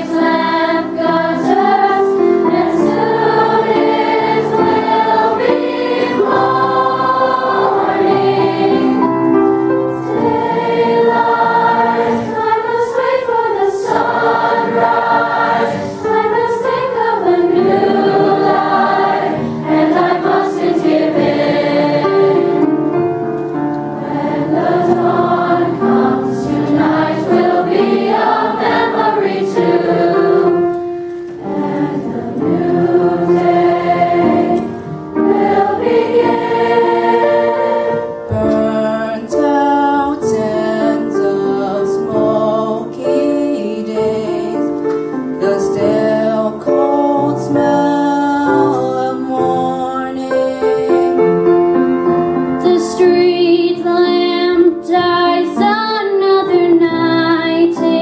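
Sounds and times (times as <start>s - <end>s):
youth choir singing: 0.0s - 22.9s, 23.9s - 44.6s.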